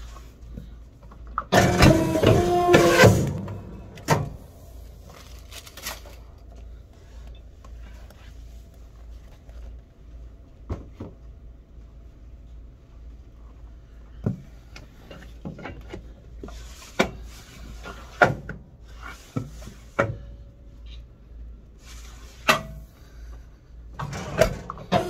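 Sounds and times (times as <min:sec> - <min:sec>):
low steady hum: 0:00.0 - 0:25.0
paper rustling: 0:05.0 - 0:06.5.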